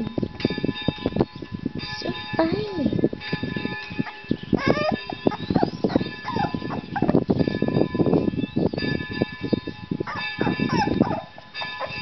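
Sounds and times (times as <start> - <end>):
puppy whining: 4.0 - 7.2.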